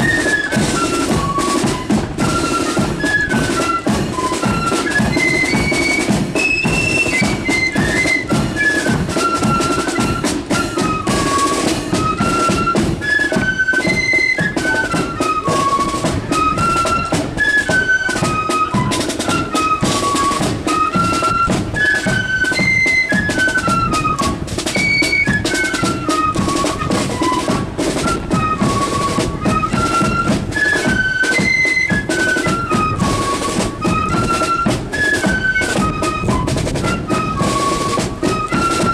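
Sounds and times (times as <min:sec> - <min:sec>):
flutes playing a tune: 0:00.0 - 0:38.9
snare drums: 0:00.0 - 0:38.9.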